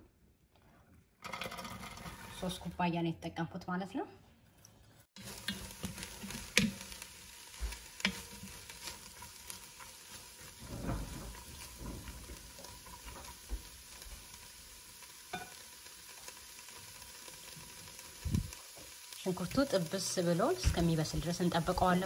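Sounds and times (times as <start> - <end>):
wooden spoon scraping pot: 1.2 - 2.8, 5.2 - 13.5
onions sizzling faintly: 4.6 - 22.0.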